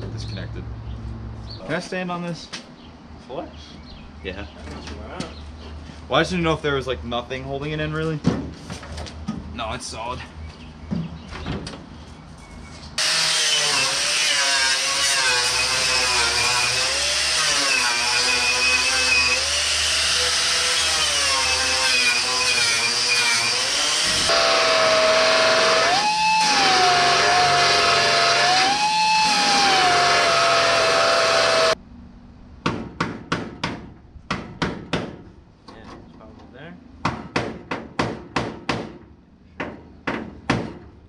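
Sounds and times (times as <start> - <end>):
electric power tool whining: 13.0 - 31.8.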